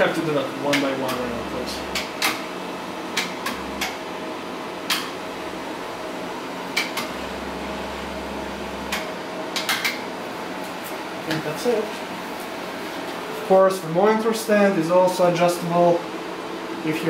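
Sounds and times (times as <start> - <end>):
low motor hum: 0.0 - 11.2.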